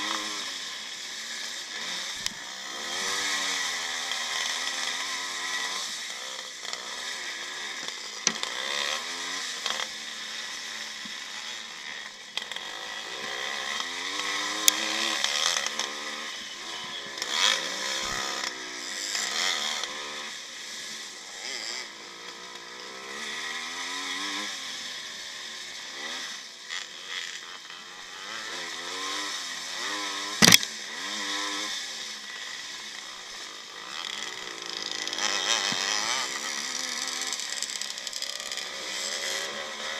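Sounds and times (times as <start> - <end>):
motorcycle engine revving: 0.0 - 39.9
sharp knock: 30.4 - 30.6.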